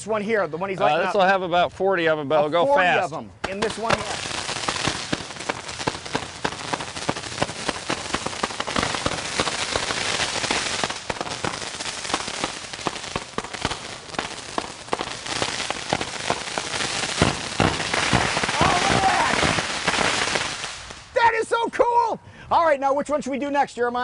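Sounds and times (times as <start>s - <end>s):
firework cake popping and crackling: 3.4s - 21.2s.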